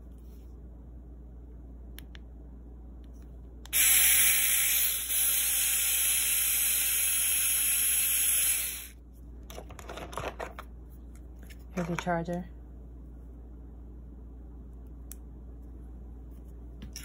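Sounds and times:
electric screwdriver motor whirring: 3.8s - 8.9s.

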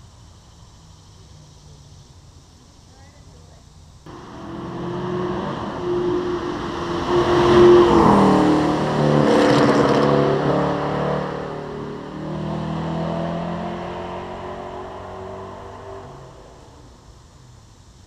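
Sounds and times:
sports car engine accelerating: 4.1s - 17.2s.

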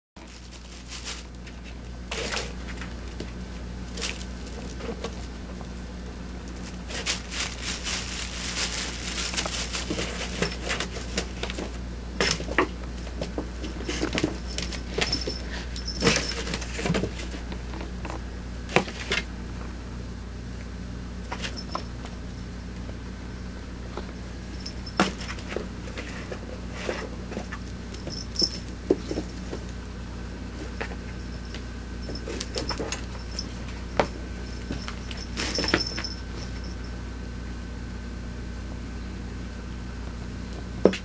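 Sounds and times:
paws scratching on cardboard: 0.2s - 19.3s, 23.9s - 29.8s, 30.5s - 36.9s
steady low hum: 0.2s - 41.0s.

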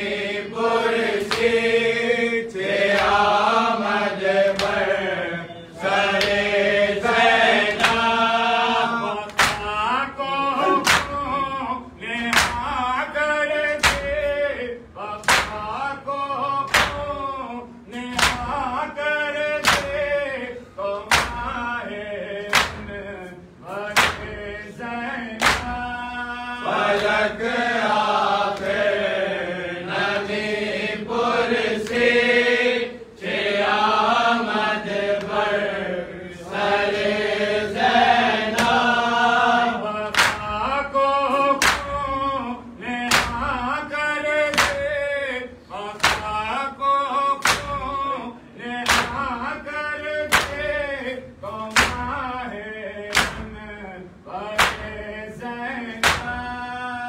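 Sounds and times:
men chanting a lament: 0.0s - 57.0s
hands slapping chests: 1.2s - 1.6s, 2.9s - 3.4s, 4.5s - 4.9s, 6.1s - 6.5s, 7.6s - 8.1s, 9.1s - 9.8s, 10.6s - 11.4s, 12.2s - 12.8s, 13.8s - 14.3s, 15.2s - 15.8s, 16.7s - 17.3s, 17.9s - 18.6s, 19.6s - 20.1s, 21.1s - 21.6s, 22.4s - 23.0s, 23.9s - 24.5s, 25.4s - 25.9s, 26.9s - 27.3s, 28.5s - 28.8s, 31.8s - 32.1s, 38.5s - 38.8s, 40.0s - 40.8s, 41.6s - 42.2s, 43.1s - 43.6s, 44.5s - 45.0s, 46.0s - 46.4s, 47.4s - 48.0s, 48.8s - 49.3s, 50.3s - 50.7s, 51.7s - 52.3s, 53.1s - 53.6s, 54.6s - 55.0s, 56.0s - 56.5s.

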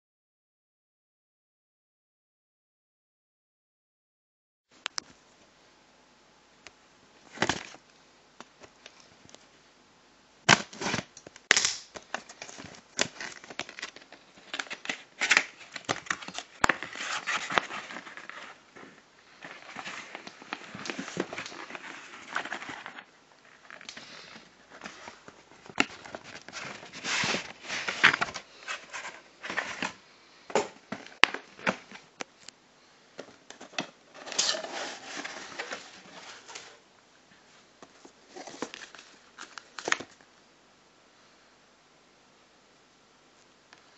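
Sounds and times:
cardboard box scraping and rustling: 24.8s - 30.0s, 34.1s - 36.8s.

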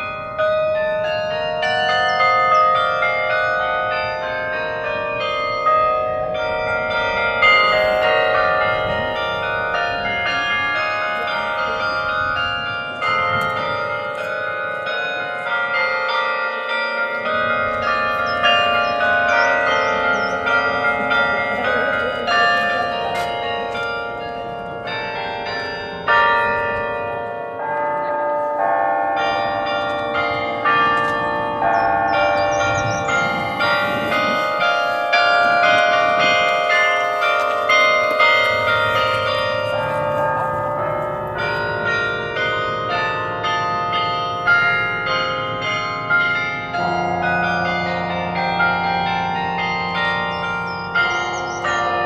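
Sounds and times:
carillon bells playing melody: 0.0s - 52.0s.

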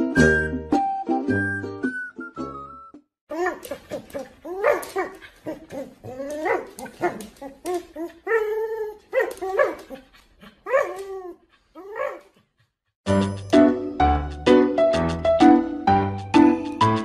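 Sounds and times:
dog whining and howling: 3.3s - 12.4s.

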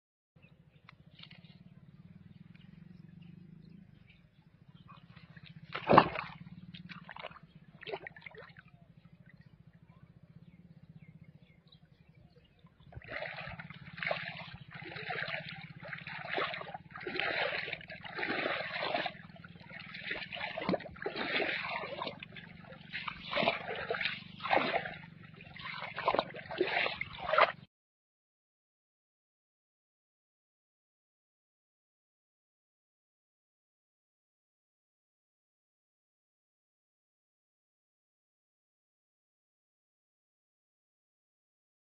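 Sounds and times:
low steady hum: 0.5s - 27.6s
running water splashing: 5.7s - 6.4s, 13.0s - 27.6s.

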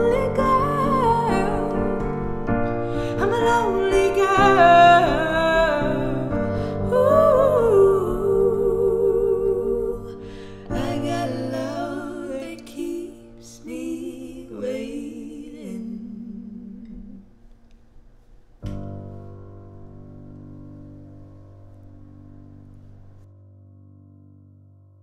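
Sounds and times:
voices singing wordlessly: 6.9s - 17.3s.

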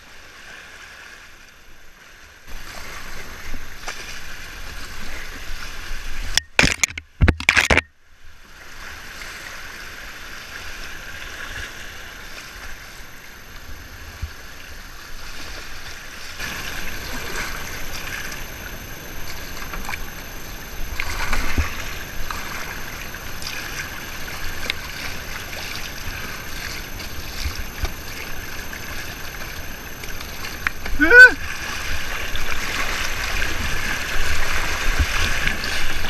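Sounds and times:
paddle stroke splashes: 8.5s - 36.0s
river current rushing and splashing: 8.5s - 36.0s.

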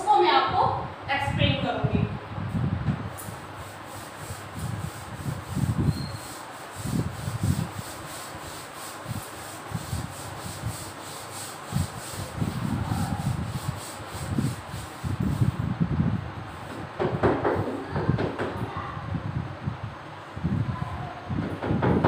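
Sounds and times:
duster rubbing on chalkboard: 3.4s - 15.6s.

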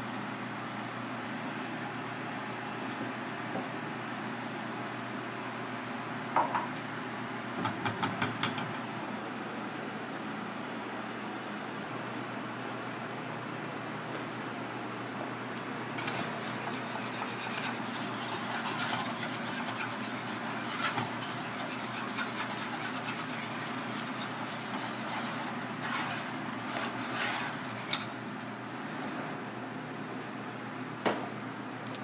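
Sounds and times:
whisk wires clicking on pan: 16.0s - 28.2s
whisk scraping a pan: 16.0s - 28.4s.

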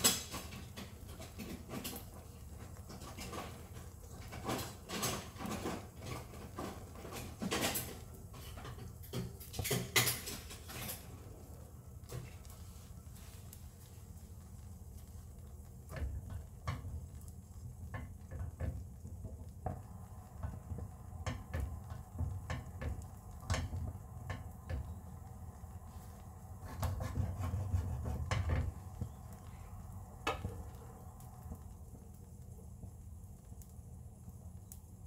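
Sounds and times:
light clicks and knocks: 15.0s - 25.4s.

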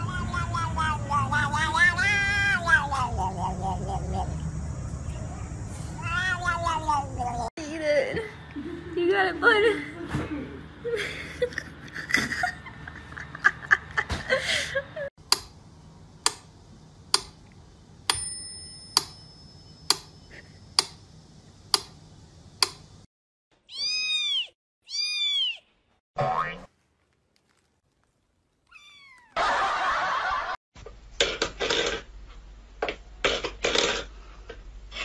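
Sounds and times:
cat meowing: 0.0s - 3.8s, 6.0s - 7.5s, 23.6s - 25.7s, 28.7s - 29.4s.

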